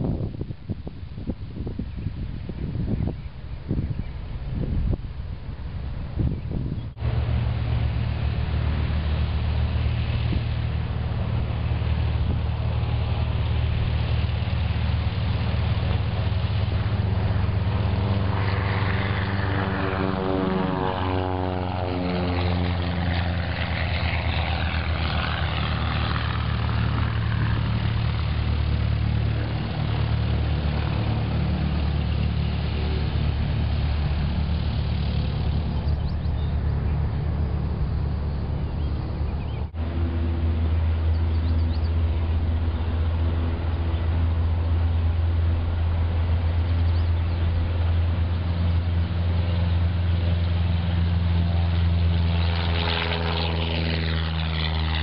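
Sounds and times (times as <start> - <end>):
propeller plane engine: 0.0 - 55.0.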